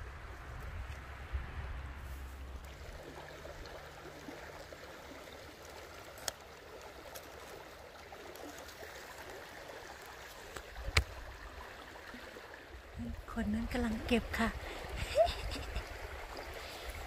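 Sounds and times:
stream babbling over stones: 0:02.4 - 0:17.0.

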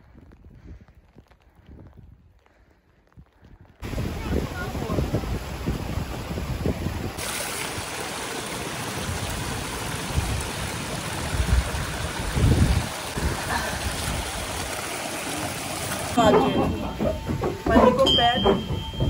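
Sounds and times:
stream water rushing: 0:03.8 - 0:17.7
low thumps: 0:16.2 - 0:19.0.

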